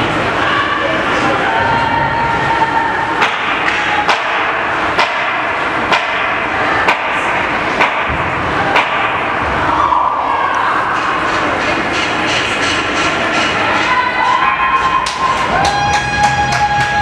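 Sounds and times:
arena crowd noise: 0.0 - 17.0
sharp knocks: 3.2 - 9.4.

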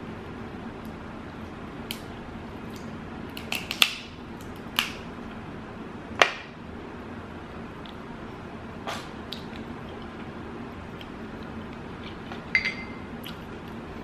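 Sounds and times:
steady low hum: 0.0 - 14.0
crab shell cracking: 2.7 - 5.0.

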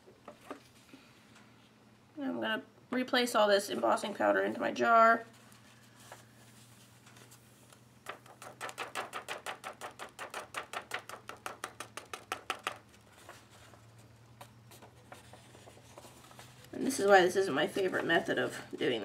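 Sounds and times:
faint steady hum: 0.0 - 19.0
paper tapping and shaking: 8.0 - 18.3.

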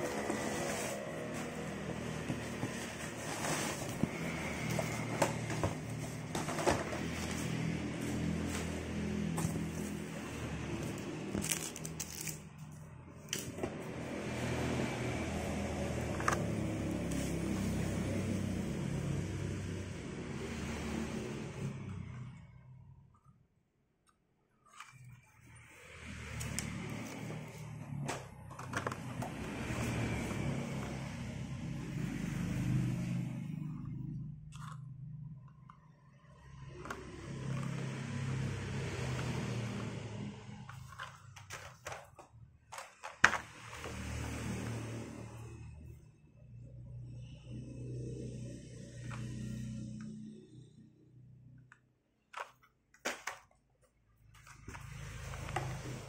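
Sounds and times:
cardboard boxes tapping and scraping: 0.0 - 7.6
plastic and cardboard crinkling: 40.7 - 43.7.

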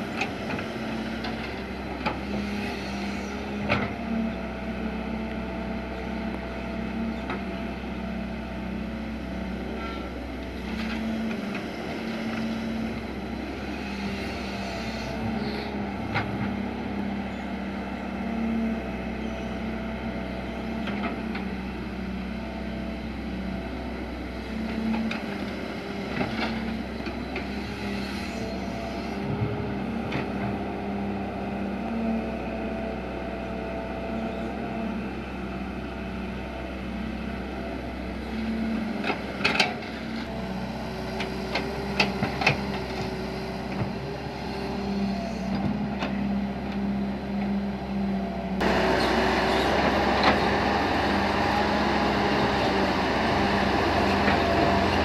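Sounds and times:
diesel engine running: 0.0 - 55.0
hydraulic whine: 48.6 - 55.0.

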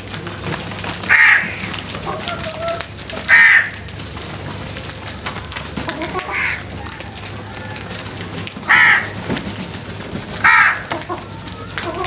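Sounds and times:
crows cawing: 1.1 - 3.9, 6.0 - 7.9, 8.7 - 9.2, 10.4 - 12.0.

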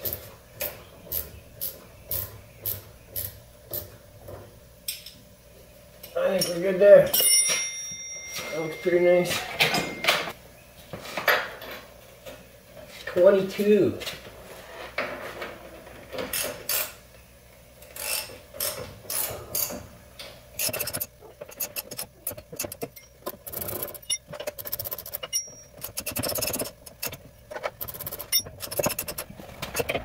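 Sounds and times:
tools clinking on metal: 6.4 - 10.3, 25.1 - 27.2
hand ratchet clicking: 20.6 - 30.0.

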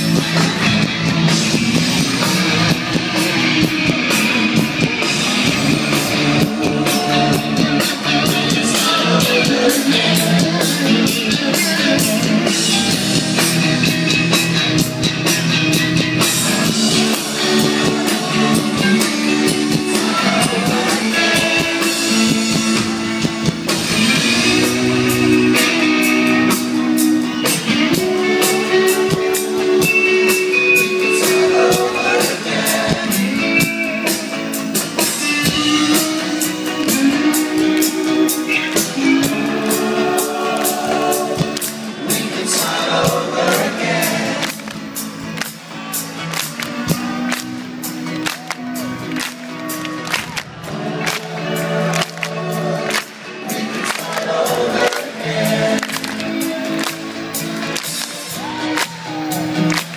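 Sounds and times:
live rock band playing: 0.0 - 59.9
steady drum beat: 0.0 - 59.9
person singing: 1.8 - 13.2, 16.6 - 22.8, 24.0 - 44.6.

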